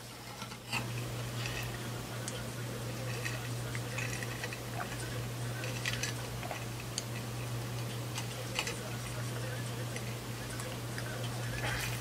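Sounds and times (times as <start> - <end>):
low hum: 0.0 - 12.0.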